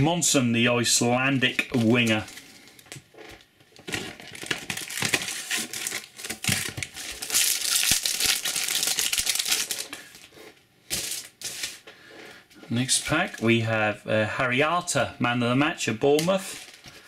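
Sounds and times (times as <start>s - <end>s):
foil wrapper crackling: 1.7s - 10.3s, 16.3s - 17.0s.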